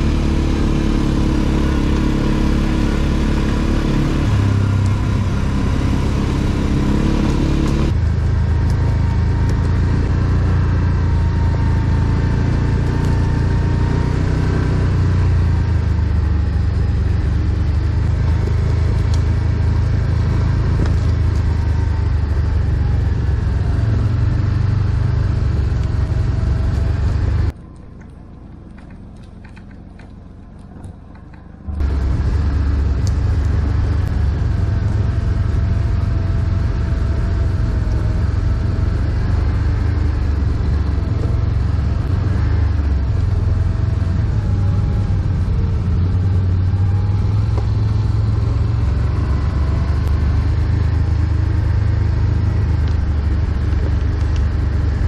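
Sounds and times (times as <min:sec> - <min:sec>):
atv engines rumbling: 0:00.0 - 0:55.0.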